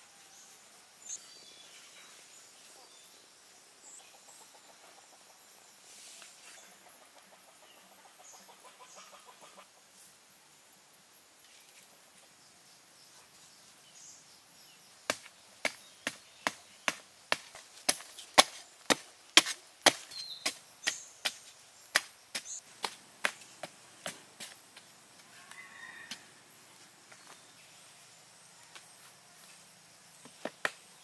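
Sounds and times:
spade chopping into hard earth: 15.1 - 24.6.

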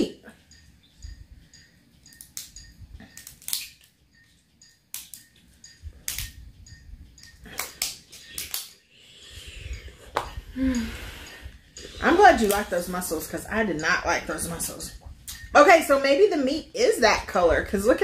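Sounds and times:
scissors snipping crab shell: 3.2 - 3.8.

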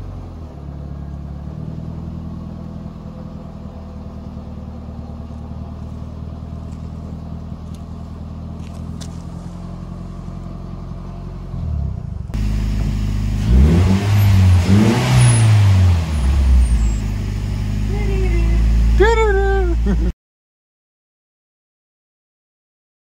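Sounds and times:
car engine idling and revving: 0.0 - 20.1.

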